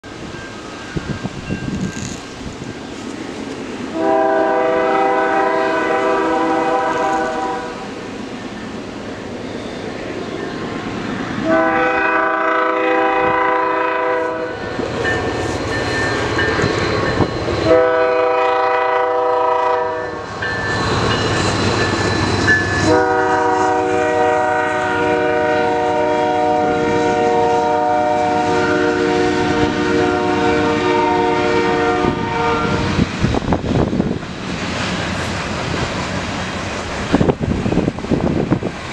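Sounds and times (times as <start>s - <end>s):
freight train rumbling: 0.0s - 38.9s
locomotive air horn blasts: 3.9s - 8.0s, 11.4s - 14.7s, 17.6s - 20.3s, 22.8s - 33.0s.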